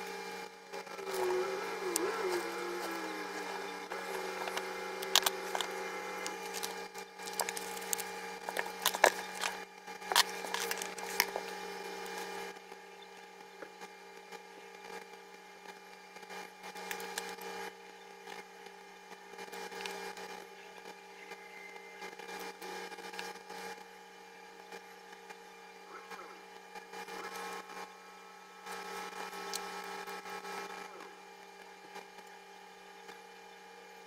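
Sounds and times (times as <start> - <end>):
steady low hum: 0.0 - 34.0
tape and paper handled: 1.1 - 12.3.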